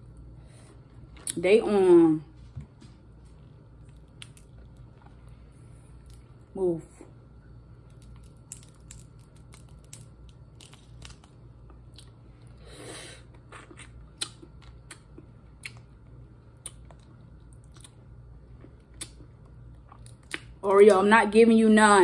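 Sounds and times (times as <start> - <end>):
shells cracking and peeling: 3.8 - 5.0, 6.0 - 6.5, 7.8 - 12.0.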